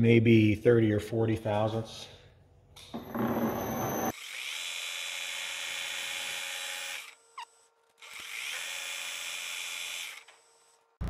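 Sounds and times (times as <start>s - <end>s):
lathe hum: 3.0s - 4.1s
lathe tool scraping metal: 3.0s - 4.1s.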